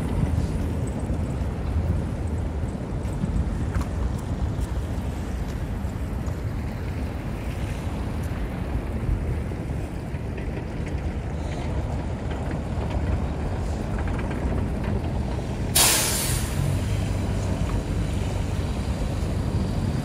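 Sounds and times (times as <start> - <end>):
bus passing: 0.0 - 20.0
low traffic rumble: 0.0 - 20.0
air brakes hissing: 15.7 - 17.1.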